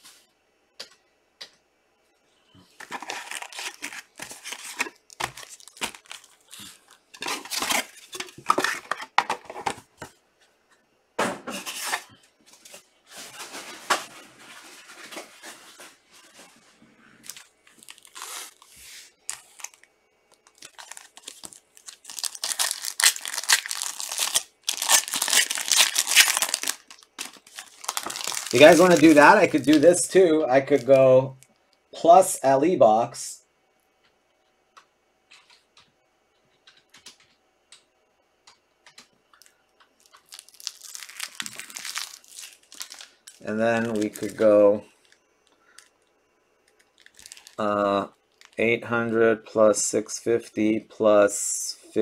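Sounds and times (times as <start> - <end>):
foil pack tearing open: 2.8 - 9.0, 17.2 - 19.8, 20.4 - 30.0, 40.0 - 44.5, 47.0 - 47.6
foil wrappers crinkling: 2.8 - 9.6, 11.6 - 31.0, 39.4 - 46.0, 46.6 - 48.7.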